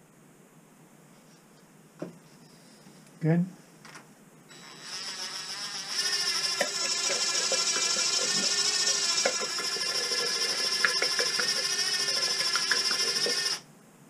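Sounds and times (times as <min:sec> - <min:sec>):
cordless drill whining: 0:04.5 - 0:13.6.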